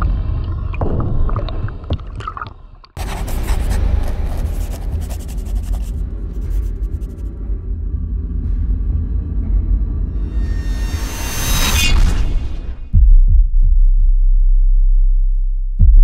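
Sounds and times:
pencil scratching on paper: 3.0s - 7.3s
low musical drone: 3.2s - 11.9s.

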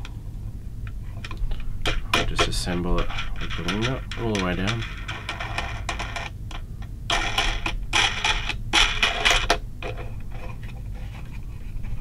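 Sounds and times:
wing nut scraping on threaded shaft: 2.2s - 6.0s.

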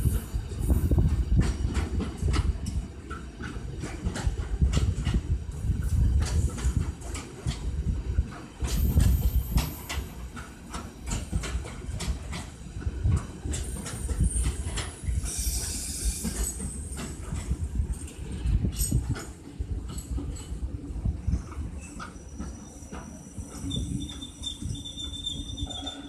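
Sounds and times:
train rumble: 0.0s - 26.0s
wheels clacking over rail joints: 1.0s - 20.6s.

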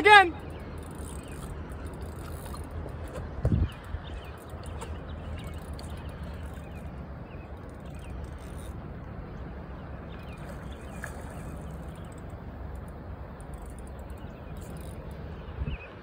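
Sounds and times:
wind rumbling on microphone: 0.6s - 12.1s, 13.8s - 16.0s.

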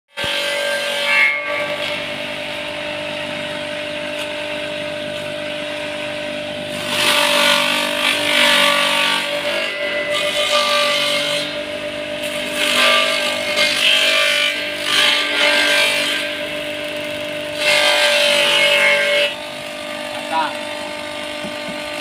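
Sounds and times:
leaf shredder motor hum: 1.5s - 10.8s, 11.4s - 22.0s
grinding of leaves being chopped: 6.6s - 22.0s.

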